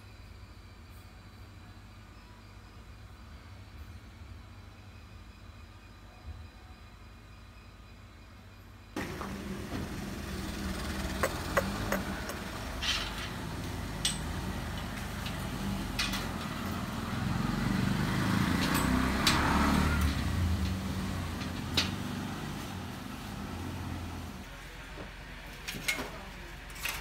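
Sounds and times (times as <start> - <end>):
vehicle engine rumbling: 9.0 - 25.2.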